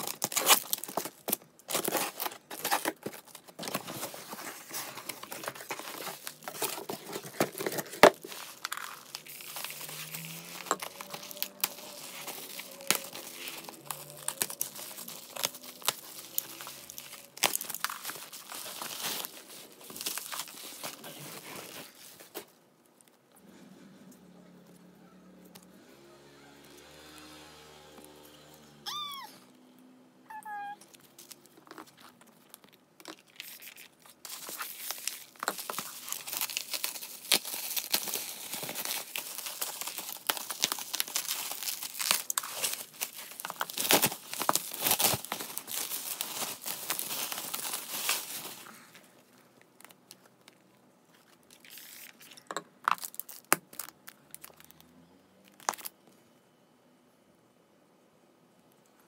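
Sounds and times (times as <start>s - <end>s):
plastic packaging rustles and taps: 0.0s - 9.2s, 34.2s - 48.5s
shrink wrap crinkling and tearing: 0.0s - 23.2s, 30.4s - 56.0s.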